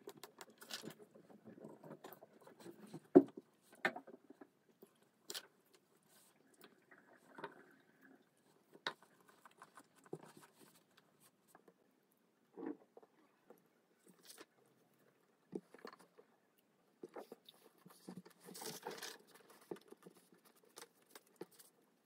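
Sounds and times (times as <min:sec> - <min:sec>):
quiet chewing: 0:04.7 - 0:11.8.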